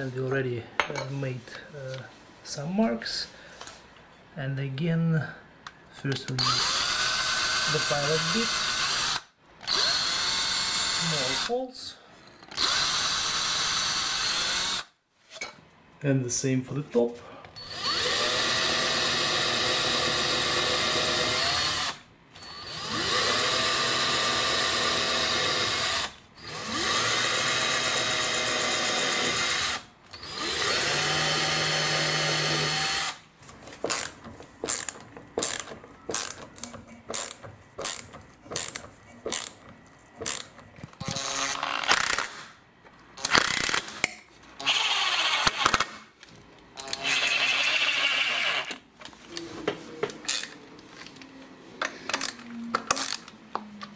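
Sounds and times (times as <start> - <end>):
drill trigger bursts driving screws: 6.4 - 11.5, 12.5 - 14.9, 17.6 - 33.2, 33.9 - 39.6, 40.2 - 42.5, 43.2 - 46.0, 46.8 - 48.8
power drill drilling: 6.4 - 11.5, 12.5 - 14.9, 17.6 - 33.2, 43.2 - 46.0, 46.8 - 48.7.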